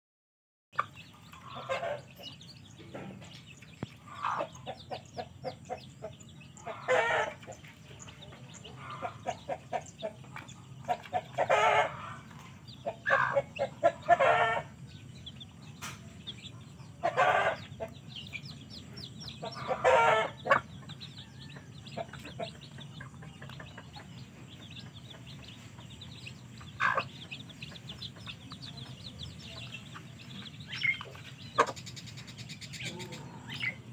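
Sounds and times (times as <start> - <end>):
chicks peeping: 0.8 - 33.9
hen clucking: 0.8 - 33.9
loud chicken calls: 1.4 - 2.2, 6.6 - 7.4, 11.2 - 12.3, 12.9 - 14.8, 17.0 - 17.9, 19.4 - 20.7, 26.7 - 27.2.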